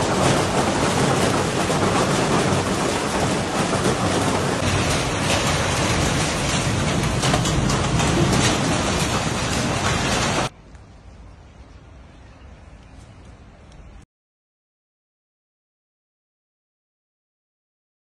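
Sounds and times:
hail clattering on paving: 0.0 - 10.5.

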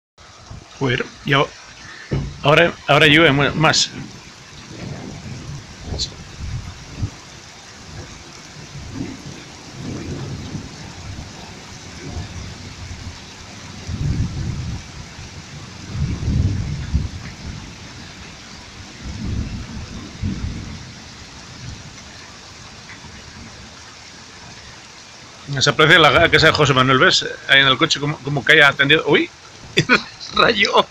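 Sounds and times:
heavy rain falling: 0.2 - 30.9
thunder rumbling: 0.3 - 30.9.

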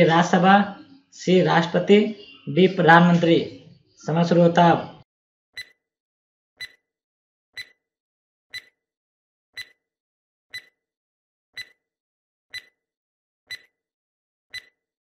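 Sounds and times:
countdown timer clicking: 5.6 - 5.8, 6.6 - 6.8, 7.6 - 7.8, 8.5 - 8.7, 9.6 - 9.8, 11.6 - 11.8, 12.5 - 12.7, 13.5 - 13.7, 14.5 - 14.8.

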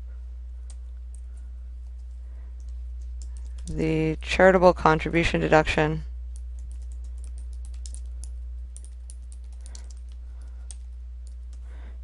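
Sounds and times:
low electrical hum: 0.0 - 12.0
keyboard typing: 2.0 - 3.8, 6.4 - 11.6.

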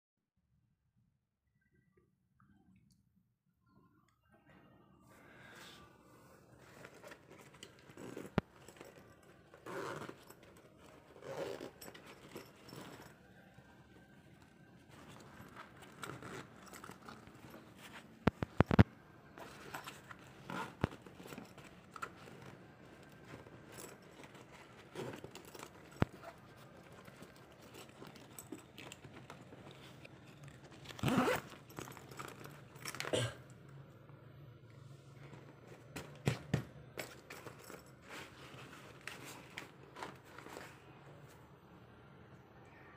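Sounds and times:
fabric bag rustling: 6.5 - 33.0
zipper opening: 6.5 - 33.2
zipper pull clicking: 6.9 - 13.1, 15.5 - 17.4, 30.8 - 32.5.

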